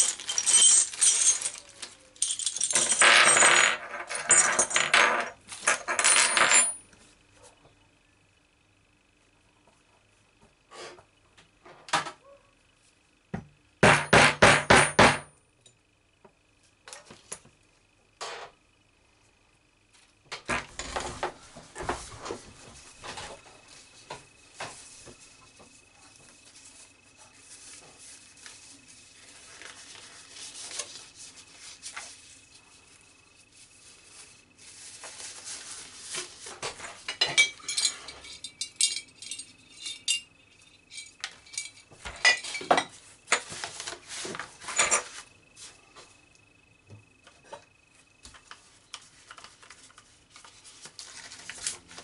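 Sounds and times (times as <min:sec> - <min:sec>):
small items clinking and tapping: 0:00.0 - 0:06.8, 0:36.1 - 0:45.2
faint high whine: 0:15.3 - 0:52.0.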